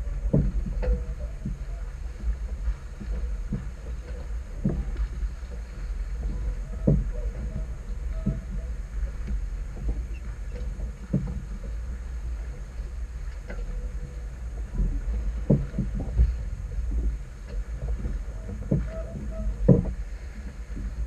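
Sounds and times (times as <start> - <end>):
water slapping against hull: 0.0 - 21.0
wind rumbling on microphone: 0.0 - 21.0.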